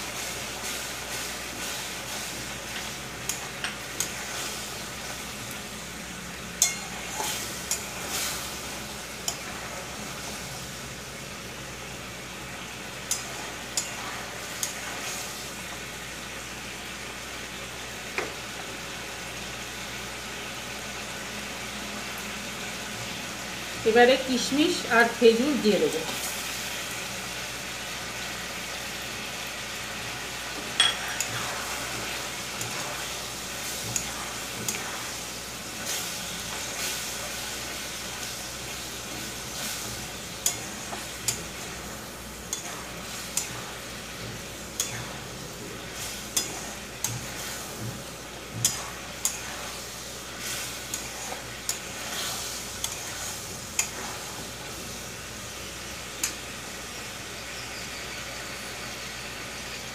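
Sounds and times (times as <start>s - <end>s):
chutney sizzling: 0.0s - 59.9s
spatula clinking against pan: 30.8s - 31.3s.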